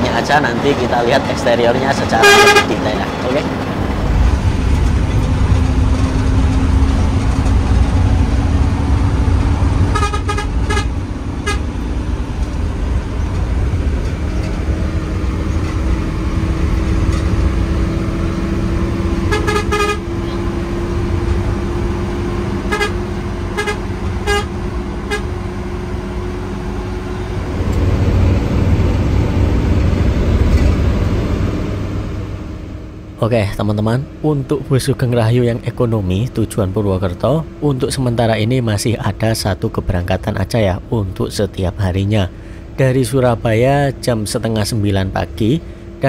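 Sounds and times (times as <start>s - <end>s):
bus engine and road rumble: 0.0s - 46.0s
vehicle horn toots: 2.1s - 2.9s, 9.9s - 11.8s, 19.3s - 20.4s, 22.6s - 25.3s.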